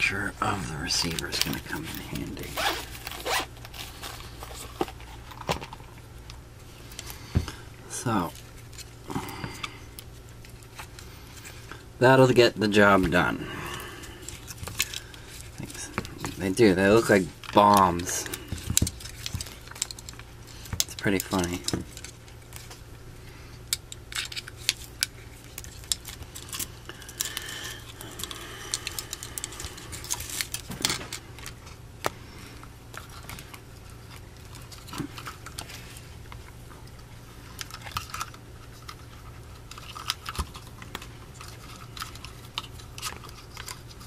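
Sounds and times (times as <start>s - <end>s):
steady low hum: 0.0s - 44.0s
clicks and rattles of parts: 17.0s - 22.8s, 37.6s - 44.0s.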